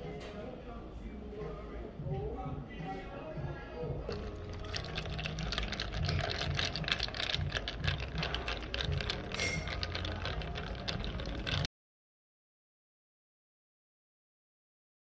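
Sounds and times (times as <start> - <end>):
lemonade fizzing in a glass: 4.1 - 11.7.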